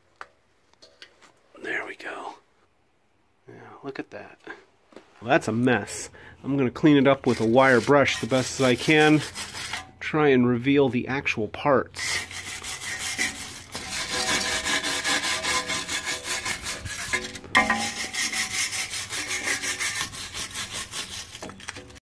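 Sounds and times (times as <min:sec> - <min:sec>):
wire brush scrubbing rust: 0:06.6 - 0:10.1, 0:11.9 - 0:22.0.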